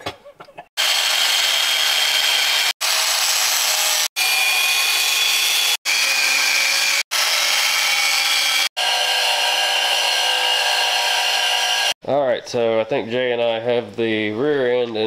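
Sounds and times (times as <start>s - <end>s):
angle grinder cutting steel: 0.8s - 12.0s.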